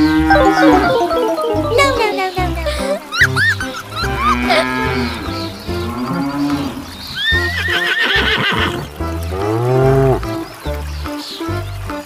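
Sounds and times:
cow mooing: 0.0s - 0.9s, 4.0s - 8.8s
cheerful music with steady beat: 0.3s - 4.4s, 8.8s - 12.0s.

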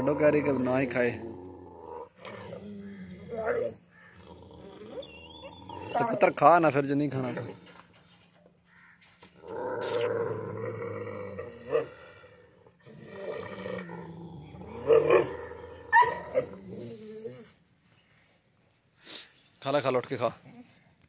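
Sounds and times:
dog growling and snarling: 0.0s - 6.3s, 9.4s - 17.4s.

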